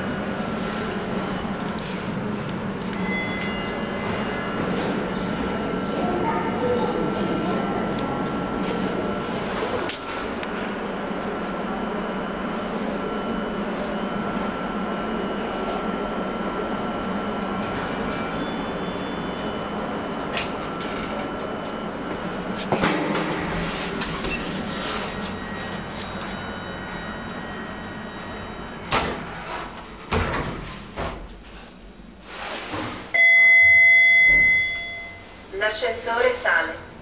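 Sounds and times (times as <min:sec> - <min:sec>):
steady lift hum: 0:00.0 - 0:32.3
lift doors opening with hiss: 0:22.8 - 0:25.9.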